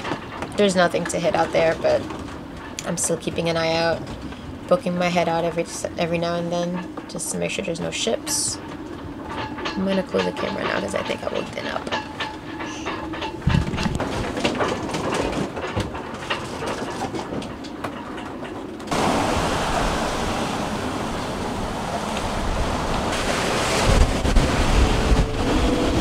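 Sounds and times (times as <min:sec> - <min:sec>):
wind buffeting microphone: 0:00.0 - 0:16.1, 0:18.8 - 0:26.0
waves: 0:18.9 - 0:26.0
wind rushing: 0:18.9 - 0:26.0.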